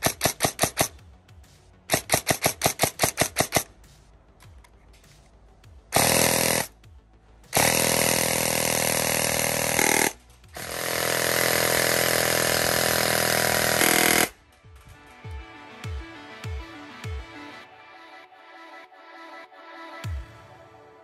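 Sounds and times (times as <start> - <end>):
airsoft rifle firing full-auto: 0.0 - 0.9, 1.9 - 3.7, 6.0 - 6.7, 7.6 - 14.4.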